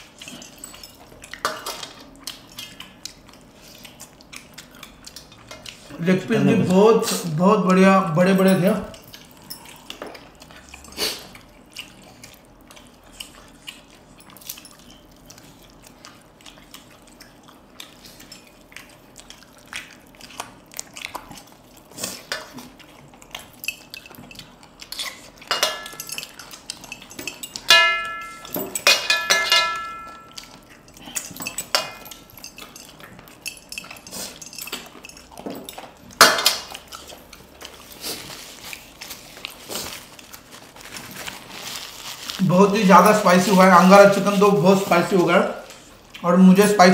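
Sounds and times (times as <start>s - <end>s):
rings clinking on steel plate: 25.5s - 30.4s
plate ringing: 27.7s - 30.4s.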